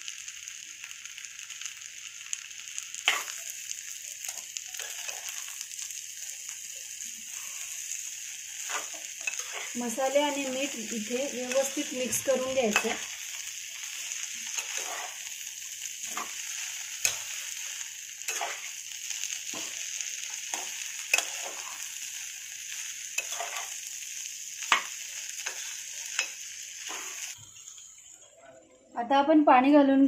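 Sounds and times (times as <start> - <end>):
food sizzling in oil: 0.0 - 28.9
utensil scraping against pot: 8.6 - 10.4, 14.5 - 15.2, 18.3 - 18.7, 23.2 - 23.7.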